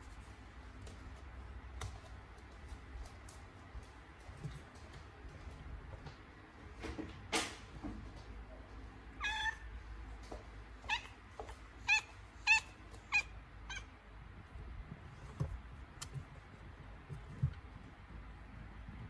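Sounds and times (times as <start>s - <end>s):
cat meowing: 9.2s - 9.7s, 10.9s - 11.2s, 11.8s - 13.9s.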